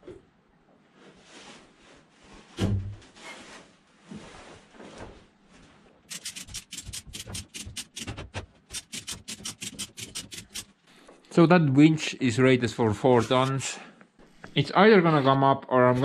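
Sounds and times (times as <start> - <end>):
winch ratchet rasping: 6.1 - 8.1, 8.7 - 10.7
scraping and rubbing: 6.1 - 10.8, 13.0 - 14.5.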